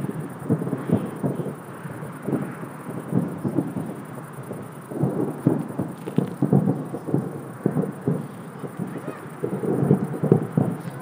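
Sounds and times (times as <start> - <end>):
firework shells bursting: 0.0 - 11.0.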